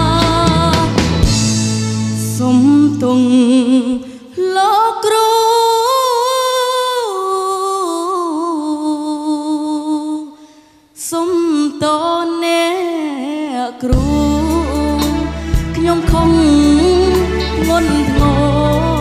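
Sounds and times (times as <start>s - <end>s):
child singing a pop ballad: 0.0s - 1.5s, 2.2s - 10.3s, 11.0s - 19.0s
band accompaniment: 0.0s - 3.2s, 14.0s - 19.0s.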